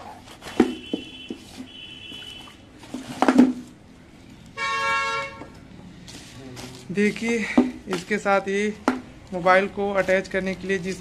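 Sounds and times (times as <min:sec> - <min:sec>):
plastic bag rustling: 0:00.0 - 0:03.8, 0:09.4 - 0:11.0
vehicle horn honking: 0:00.5 - 0:02.6, 0:04.6 - 0:05.6.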